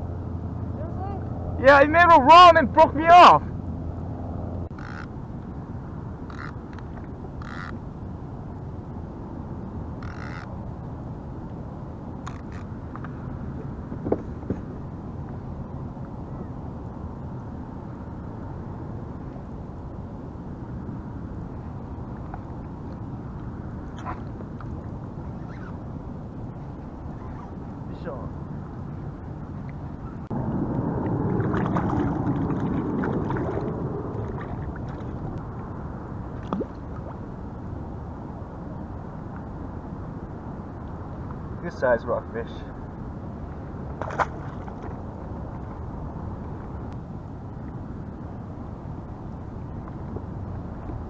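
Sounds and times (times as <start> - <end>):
water noise: 0.0 - 51.0
wind noise on microphone: 3.2 - 41.6, 42.7 - 51.0
short falling squeak: 25.3 - 25.8
water gurgling and splashing: 30.3 - 35.7.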